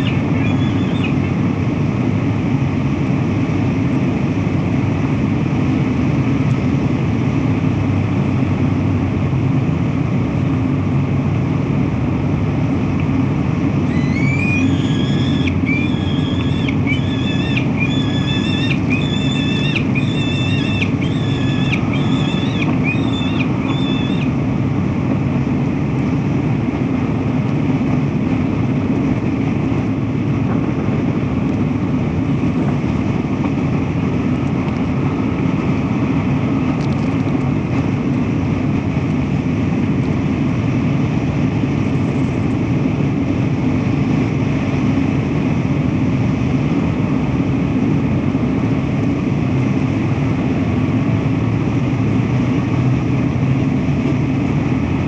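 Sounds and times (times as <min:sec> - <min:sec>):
bird calling: 0:00.0 - 0:01.4, 0:13.8 - 0:24.4
low city rumble: 0:00.0 - 0:55.0.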